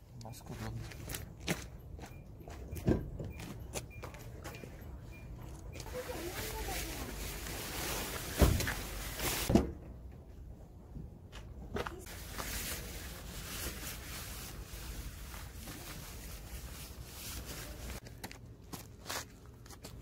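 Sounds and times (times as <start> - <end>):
footsteps scuffing on concrete: 0.4 - 4.8, 17.9 - 20.0.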